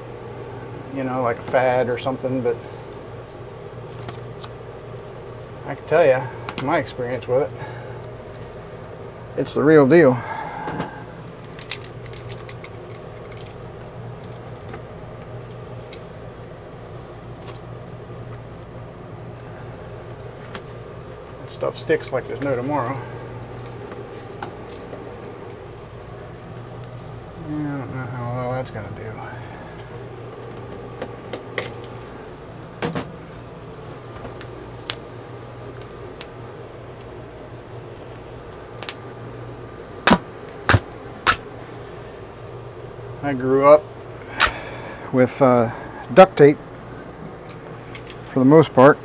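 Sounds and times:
steady low hum: 0:00.0 - 0:49.0
tape clicking and crackling: 0:11.4 - 0:16.1, 0:34.1 - 0:37.2, 0:38.1 - 0:39.0, 0:40.0 - 0:41.5.

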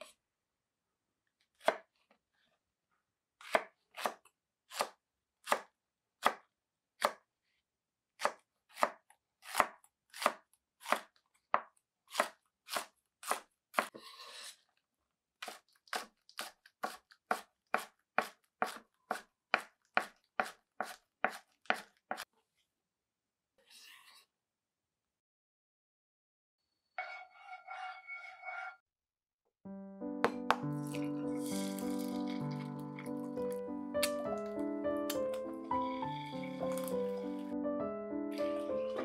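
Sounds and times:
knife scraping board: 0:13.8 - 0:14.6, 0:27.0 - 0:28.8.

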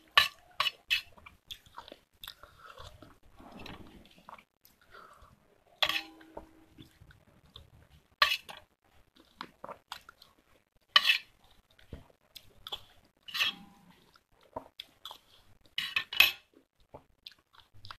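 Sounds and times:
wet mouth eating sounds: 0:00.3 - 0:05.1
spoon scraping a steel bowl: 0:05.8 - 0:06.7, 0:11.0 - 0:11.3, 0:13.3 - 0:13.9.

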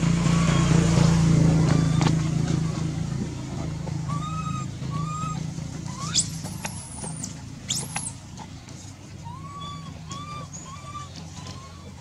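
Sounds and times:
infant monkey whimpering coos: 0:01.6 - 0:03.0, 0:04.0 - 0:06.4, 0:09.2 - 0:12.0
infant monkey shrill cries: 0:04.0 - 0:06.4, 0:09.2 - 0:11.9.

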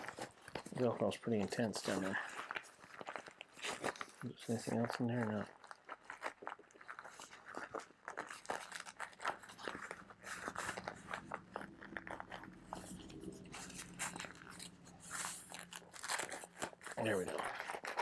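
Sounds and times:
fabric bag rustling: 0:00.0 - 0:18.0
faint low hum: 0:09.7 - 0:17.6.

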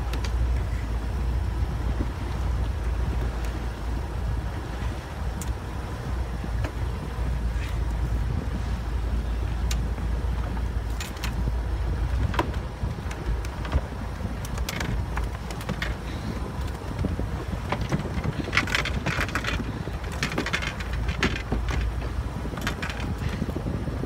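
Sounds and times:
outboard motor rumbling: 0:00.0 - 0:24.0
wind on microphone: 0:00.0 - 0:24.0
crackles and rustles: 0:06.5 - 0:23.8.

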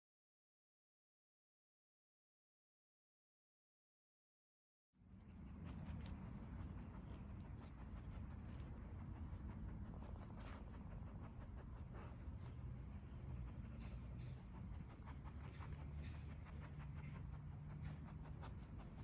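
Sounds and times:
low steady rumble: 0:05.1 - 0:19.0
dog scratching at dirt: 0:05.2 - 0:19.0.

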